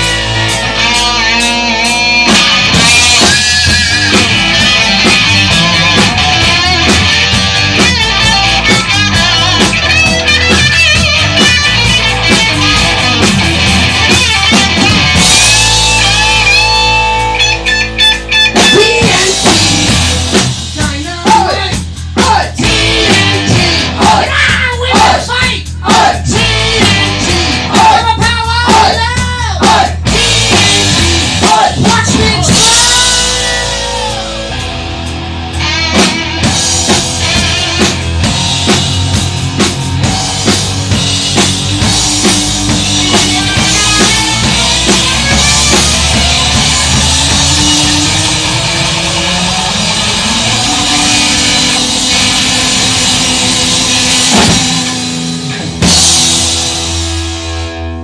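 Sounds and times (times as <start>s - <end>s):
rising bass line: 0.0s - 20.8s, 22.6s - 24.3s, 26.3s - 27.8s, 30.0s - 57.9s
drum rolls: 0.0s - 34.8s, 35.8s - 57.4s
rock band playing loud: 0.0s - 58.0s
bent guitar notes: 32.5s - 57.8s.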